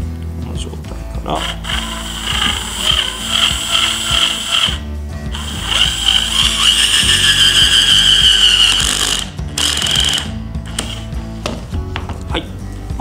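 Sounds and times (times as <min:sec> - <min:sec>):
drill driver motor whine: 0:01.4 - 0:11.1.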